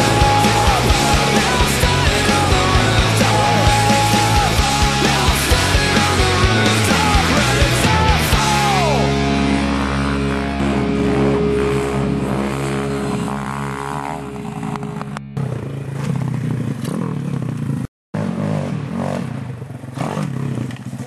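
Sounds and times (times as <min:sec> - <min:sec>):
heavy rock music: 0:00.0 - 0:16.0
pit bike engine revving: 0:00.0 - 0:21.0.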